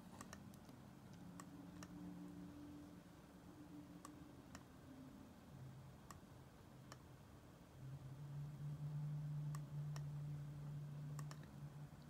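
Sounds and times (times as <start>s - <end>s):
computer mouse clicking: 0.0s - 2.0s, 4.0s - 4.7s, 6.0s - 7.1s, 9.5s - 10.2s, 11.1s - 11.6s
faint low hum: 0.0s - 12.0s.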